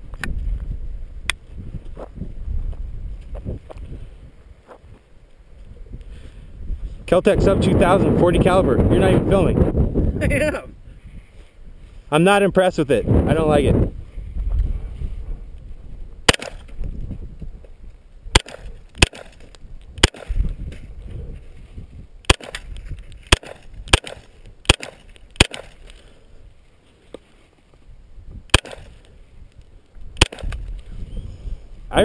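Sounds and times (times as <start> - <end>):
carbine gunshots: 16.3 - 16.7, 18.3 - 19.4, 20.0 - 20.4, 22.2 - 25.8, 28.5 - 29.0, 30.2 - 30.6.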